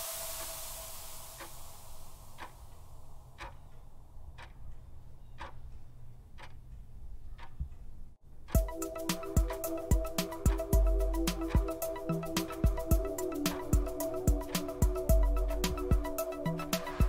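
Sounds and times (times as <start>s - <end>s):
countdown timer ticking: 8.5s - 17.0s
music with steady beat: 8.5s - 17.0s.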